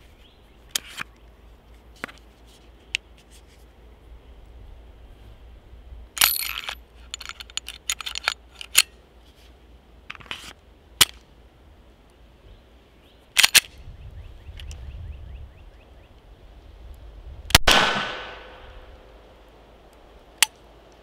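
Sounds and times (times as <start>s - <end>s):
pistol slide racking: 6.2s - 8.9s, 13.4s - 13.7s
metal gun parts clicking: 6.2s - 9.0s, 13.4s - 13.7s.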